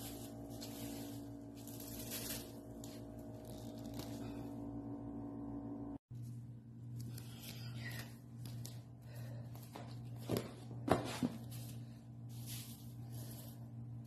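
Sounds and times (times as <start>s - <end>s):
rug rustling: 0.0s - 4.4s
steady low hum: 0.0s - 14.0s
footsteps on hard floor: 9.8s - 11.5s.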